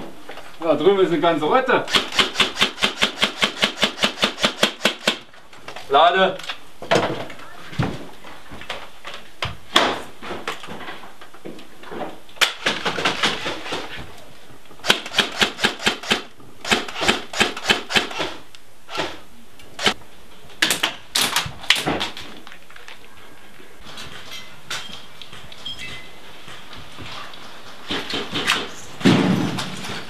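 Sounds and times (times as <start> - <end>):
airsoft gun firing: 1.9 - 5.3, 14.8 - 19.2.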